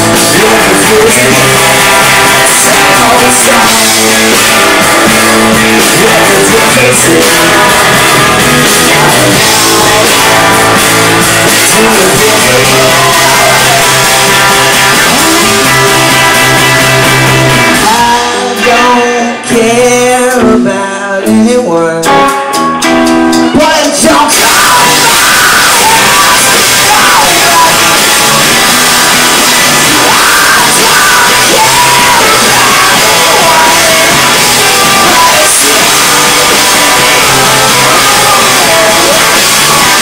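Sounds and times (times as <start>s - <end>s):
live rock band playing: 0.0s - 40.0s
person singing: 0.0s - 40.0s.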